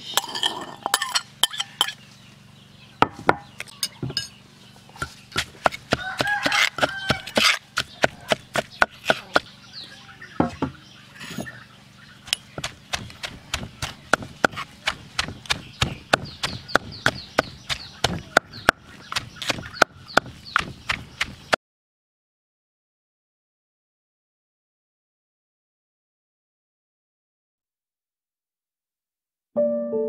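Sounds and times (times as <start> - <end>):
pestle pounding in stone mortar: 5.0 - 9.5, 12.3 - 21.6.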